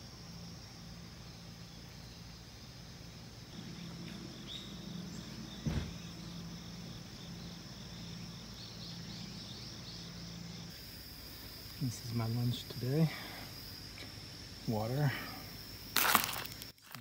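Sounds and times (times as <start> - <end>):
low steady hum: 0.0 - 14.6
high-pitched insect song: 0.0 - 17.0
bird-like chirps: 3.6 - 6.5.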